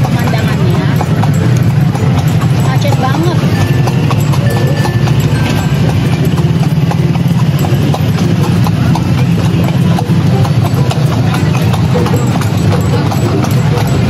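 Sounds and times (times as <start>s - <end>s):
horse hooves clip-clopping on pavement: 0.0s - 14.0s.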